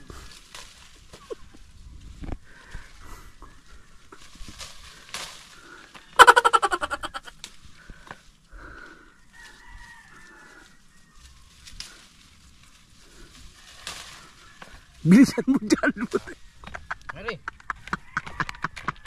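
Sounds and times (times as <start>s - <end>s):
chicken calling: 5.9s - 7.4s.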